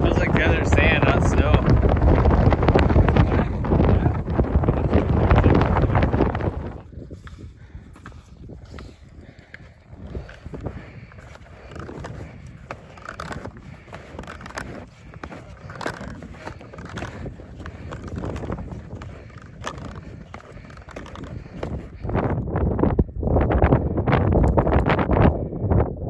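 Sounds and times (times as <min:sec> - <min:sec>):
skis scraping over snow: 0:00.0 - 0:07.4, 0:10.1 - 0:22.0
ski poles crunching and clicking: 0:00.2 - 0:22.4.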